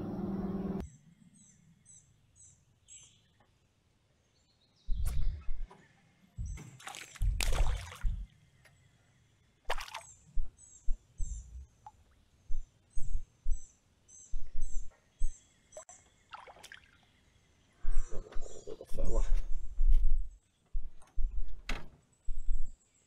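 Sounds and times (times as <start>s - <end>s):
bird chirping: 0.4s - 23.0s
small water splashes: 6.6s - 8.3s, 9.7s - 10.2s, 16.2s - 17.2s.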